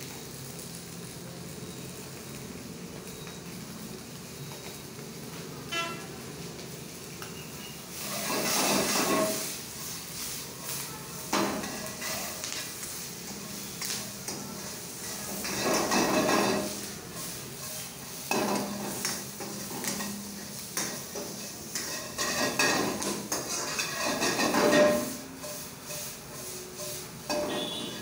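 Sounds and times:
vegetables sizzling: 0:00.0 - 0:28.0
metal spatula scraping a wok: 0:07.6 - 0:28.0.

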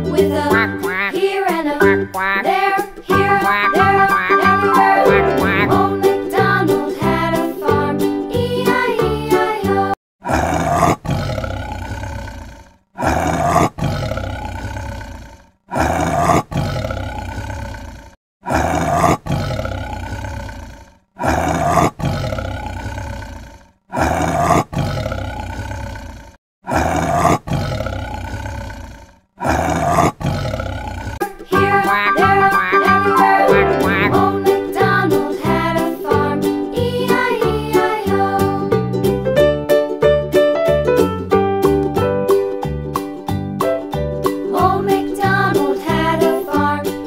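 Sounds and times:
tiger roaring: 0:10.2 - 0:31.2.

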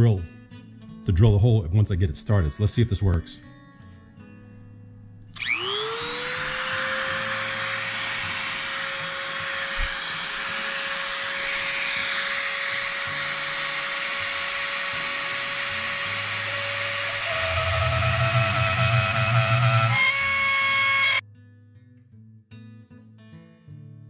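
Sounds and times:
cutting tip grinding on magnet: 0:05.4 - 0:21.2
rotary tool whine: 0:05.4 - 0:21.2.

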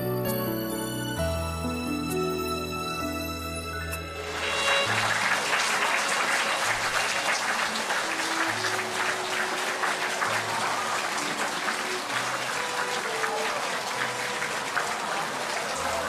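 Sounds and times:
slow instrumental music: 0:00.0 - 0:16.0
audience applauding: 0:04.0 - 0:16.0.

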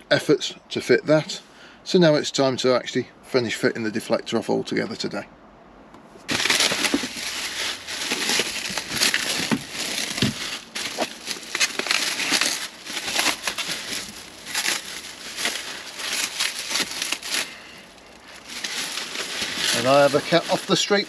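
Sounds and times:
plastic packaging crinkling: 0:06.3 - 0:21.0.

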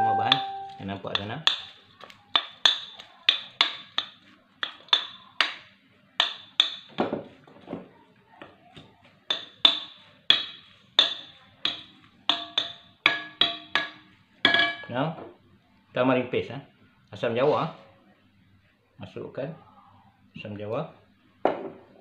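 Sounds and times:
wooden spoon tapping glass bowl: 0:00.0 - 0:07.0, 0:09.3 - 0:14.9.

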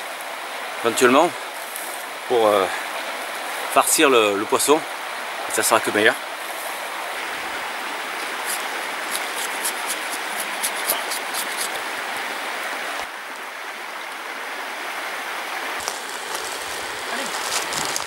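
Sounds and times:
river water flowing: 0:00.0 - 0:18.0
dry grass crackling: 0:08.2 - 0:11.8, 0:15.8 - 0:18.0.

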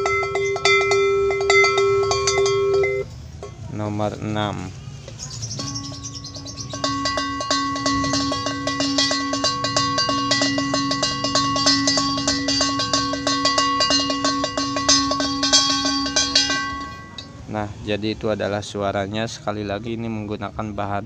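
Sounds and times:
cow bell ringing: 0:00.0 - 0:04.0, 0:05.3 - 0:17.6.

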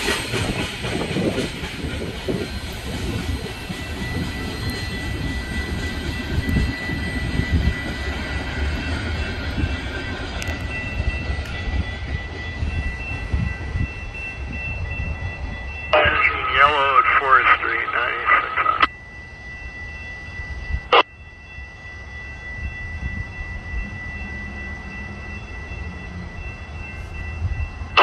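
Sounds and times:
train wheels rumbling on rail: 0:00.0 - 0:16.0
thin high tone: 0:03.1 - 0:28.0.

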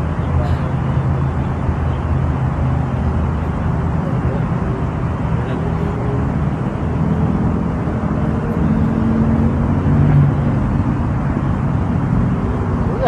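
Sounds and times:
vehicle motor humming: 0:00.0 - 0:13.0.

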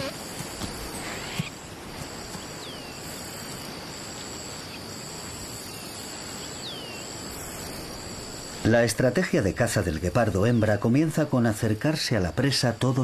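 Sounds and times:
high-pitched insect drone: 0:00.0 - 0:10.4
insect chirring: 0:00.0 - 0:13.0.

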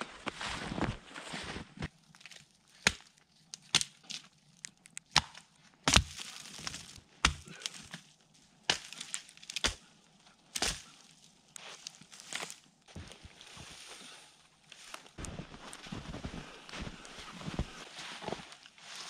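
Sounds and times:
branches snapping: 0:02.1 - 0:09.9, 0:10.5 - 0:13.2.

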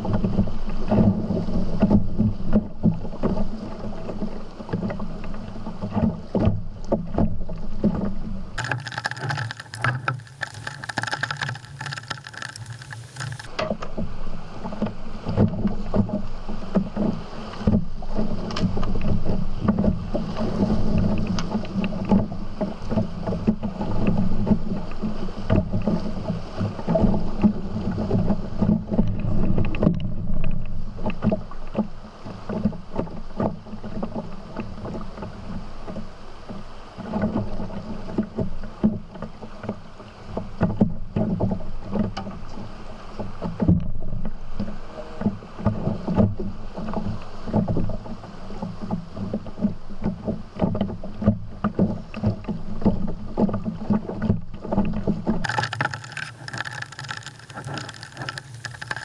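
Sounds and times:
knocks and slaps against boat: 0:05.8 - 0:08.3
river water rushing and splashing: 0:08.6 - 0:13.6, 0:55.4 - 0:59.0.

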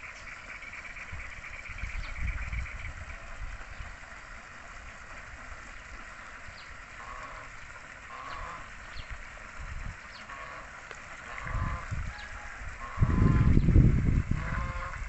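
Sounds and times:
ducks quacking: 0:07.0 - 0:08.7, 0:10.2 - 0:13.6, 0:14.3 - 0:15.0.

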